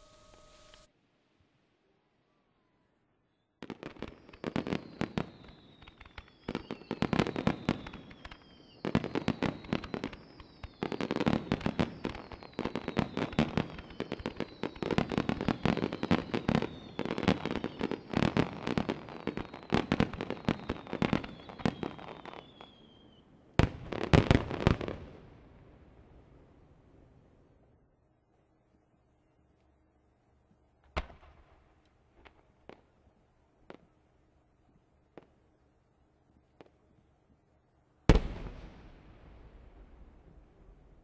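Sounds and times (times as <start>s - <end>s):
fireworks bangs and crackles: 3.6s - 27.6s, 30.8s - 33.0s, 38.1s - 41.0s.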